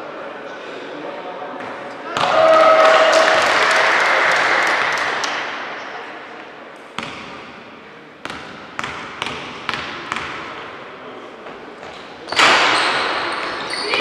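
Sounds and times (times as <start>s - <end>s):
crowd noise in hall: 0.0s - 14.0s.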